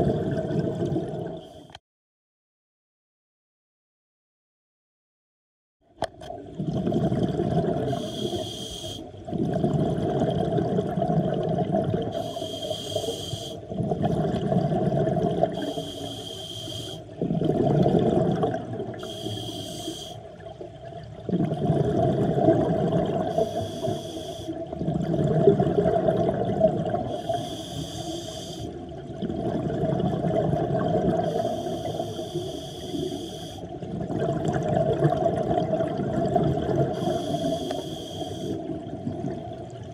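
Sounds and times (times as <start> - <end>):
exhaled air bubbling: 0.0 - 1.7, 6.0 - 39.9
regulator inhalation hiss: 7.9 - 9.1, 12.1 - 13.6, 15.6 - 17.1, 19.0 - 20.2, 23.3 - 24.6, 27.1 - 28.8, 31.2 - 33.7, 36.9 - 38.7.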